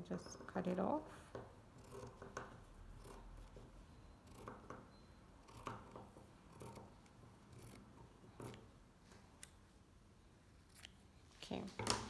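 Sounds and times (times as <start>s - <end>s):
scissors snipping fabric: 5.4s - 7.8s.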